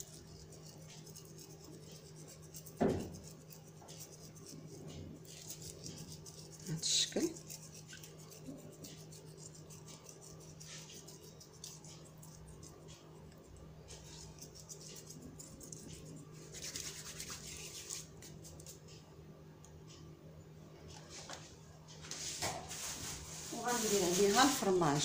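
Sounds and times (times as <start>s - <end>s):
steady low hum: 0.0s - 25.0s
dry herbs crackling and rustling: 22.7s - 25.0s.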